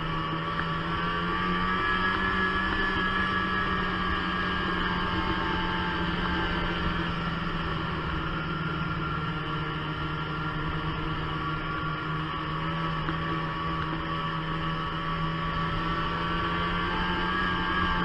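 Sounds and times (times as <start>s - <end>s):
snowmobile engine running: 0.0s - 18.0s.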